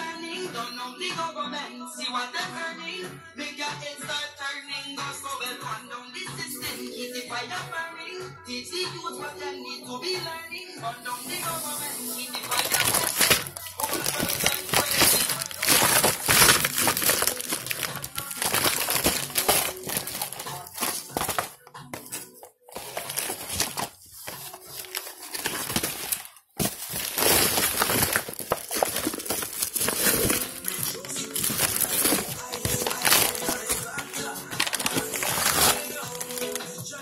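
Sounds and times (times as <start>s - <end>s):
background music: 0.0s - 37.0s
plastic wrapping crinkling: 11.2s - 36.8s.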